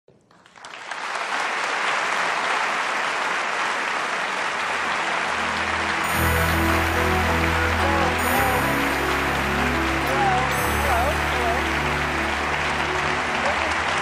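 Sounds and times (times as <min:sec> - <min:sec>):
audience applauding: 0:00.1 - 0:14.0
music with low bass line: 0:06.0 - 0:13.0.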